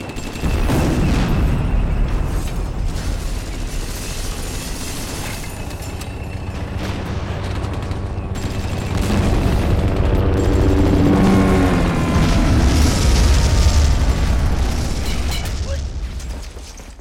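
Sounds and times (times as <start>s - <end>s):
cinematic music: 6.6s - 15.6s.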